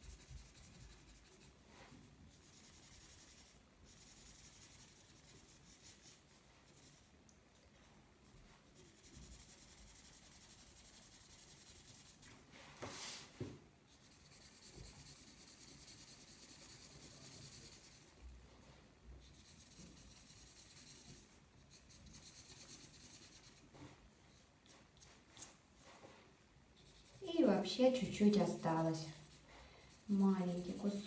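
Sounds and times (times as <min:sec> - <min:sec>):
marker scratching on paper: 0:00.0 - 0:07.1, 0:08.4 - 0:12.9, 0:13.9 - 0:18.2, 0:19.2 - 0:23.9, 0:26.8 - 0:31.0.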